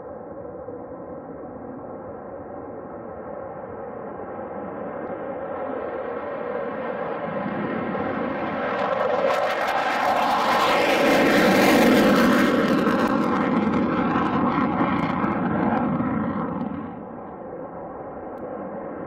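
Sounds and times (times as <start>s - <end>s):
jet roaring with crackling: 4.9s - 19.0s.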